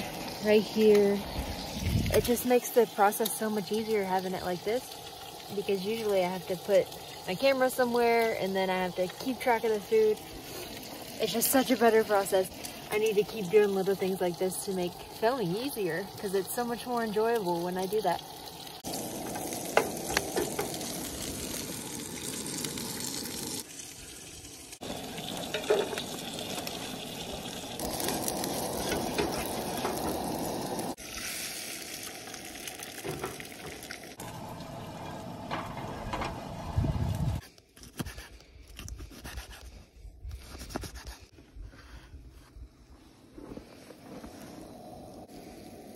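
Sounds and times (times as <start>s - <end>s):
food sizzling in frying pans: 0.0s - 36.5s.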